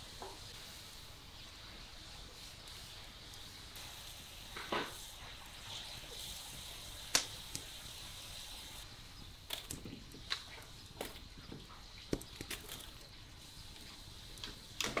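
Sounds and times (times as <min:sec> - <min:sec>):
wood fire crackling: 0:00.0 - 0:15.0
sharp pops of fire: 0:03.3 - 0:08.0, 0:09.5 - 0:11.2.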